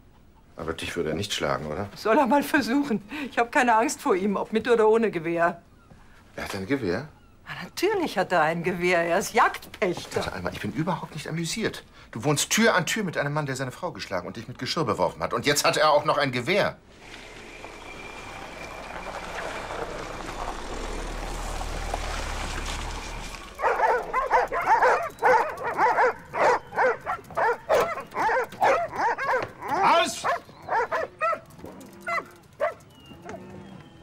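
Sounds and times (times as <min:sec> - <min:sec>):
car engine and tyres rumbling: 0:16.8 - 0:29.7
dogs barking: 0:23.5 - 0:33.5.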